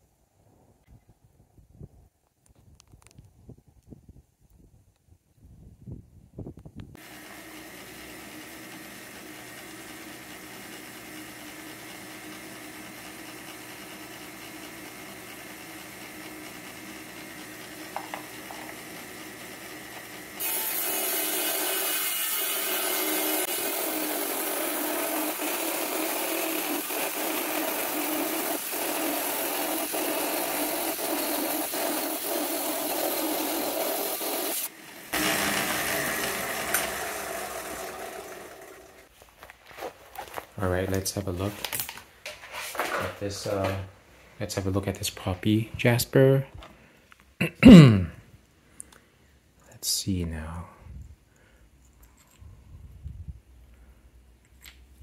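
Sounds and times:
saw blade cutting stone: 7.0s - 39.0s
saw blade spinning: 7.0s - 39.1s.

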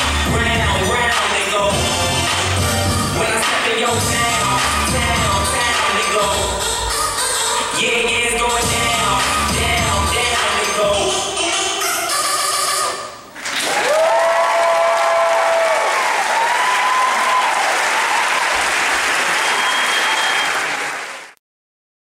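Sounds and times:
dance music: 0.0s - 13.2s
audience applauding and cheering: 13.4s - 21.4s
high-pitched whoops: 13.6s - 18.6s.

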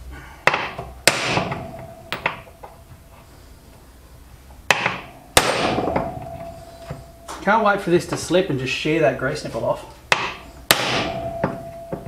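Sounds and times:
hammer striking metal: 0.5s - 2.8s, 4.7s - 7.5s, 10.1s - 12.0s
short metallic ring: 5.8s - 7.4s, 11.0s - 12.0s.

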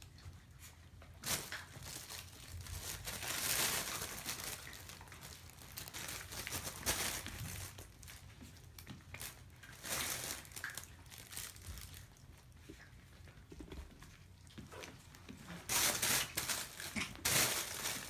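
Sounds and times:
fabric tunnel rustling and crinkling: 1.2s - 8.3s, 9.2s - 12.1s, 15.5s - 18.0s.

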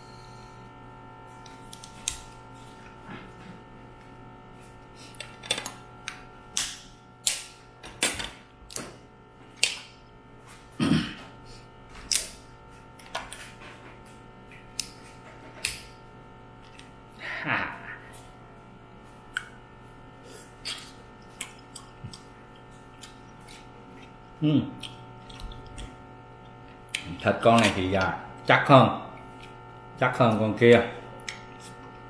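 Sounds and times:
mouth sounds of eating: 22.9s - 27.3s.

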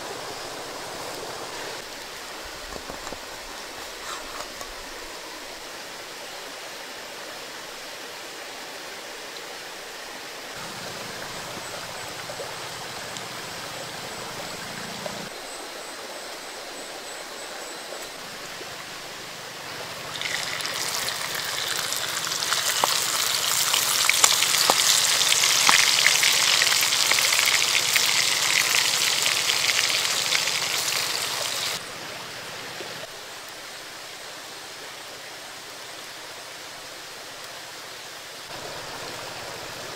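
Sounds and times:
water splashing in a pot: 20.0s - 31.8s
water poured into a clay pot: 20.1s - 28.1s.

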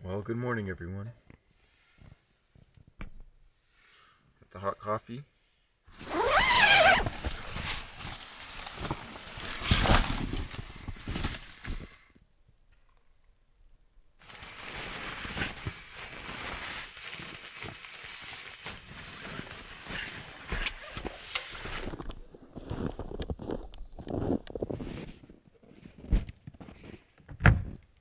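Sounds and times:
rustling inside tent: 5.9s - 12.2s, 14.2s - 27.2s.

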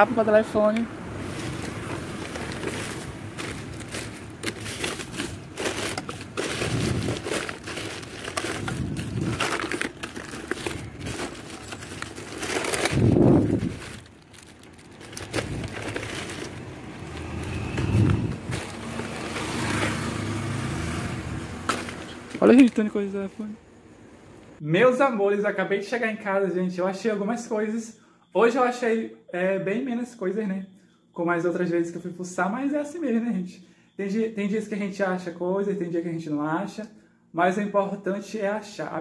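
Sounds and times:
plastic bags crinkling and rustling: 1.2s - 20.3s, 21.6s - 22.9s.

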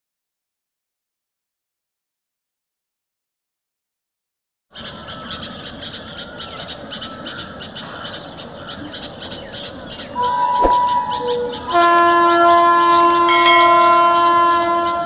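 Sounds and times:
high repeated chirping: 10.1s - 12.1s, 13.0s - 14.2s
train horn: 10.2s - 15.0s.

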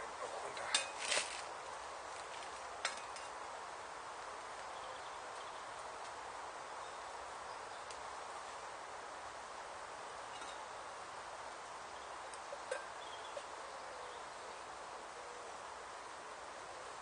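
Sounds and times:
woodland background hiss: 0.0s - 17.0s
paper packaging rustling: 0.9s - 1.5s.

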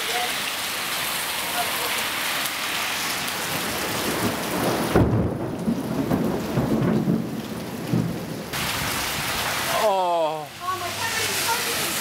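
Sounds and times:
steady rain falling: 0.0s - 12.0s
thunder clap rumbling: 3.5s - 9.4s.

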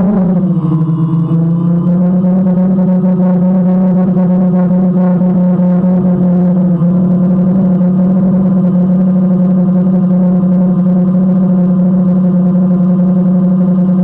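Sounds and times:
drone propellers humming: 0.0s - 14.0s.

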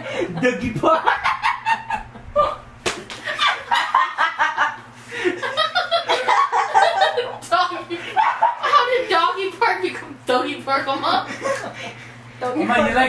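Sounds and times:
women laughing: 0.0s - 9.3s, 10.9s - 12.2s
sharp slap: 2.8s - 3.3s.

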